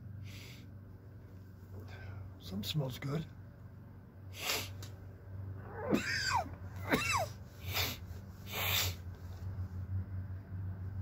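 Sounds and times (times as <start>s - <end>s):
short breathy puffs: 4.3s - 4.9s, 7.4s - 9.6s.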